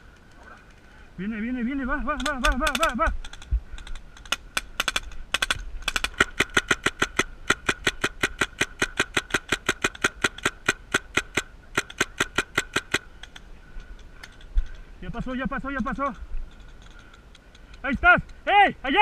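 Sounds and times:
paintball marker firing: 4.2 - 13.1.

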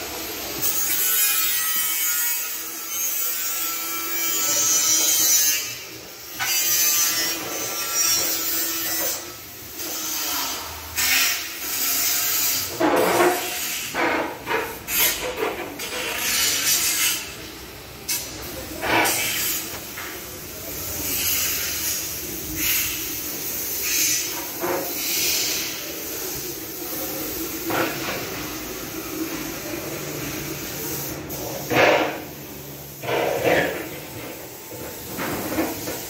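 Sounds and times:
steady workshop hiss: 0.0 - 36.0
tools and panels clattering: 12.6 - 17.2.

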